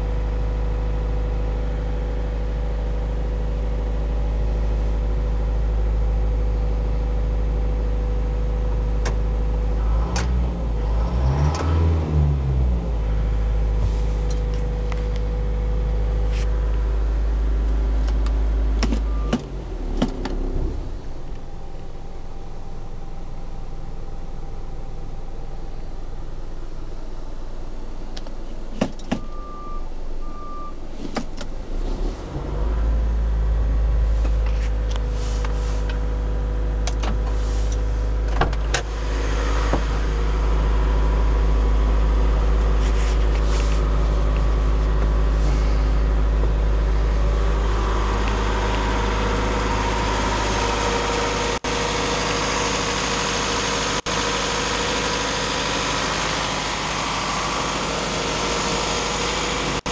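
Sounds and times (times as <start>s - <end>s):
diesel truck idling: 12.7s - 30.9s, 32.9s - 59.9s
short beeps: 19.0s - 19.4s, 29.2s - 30.8s.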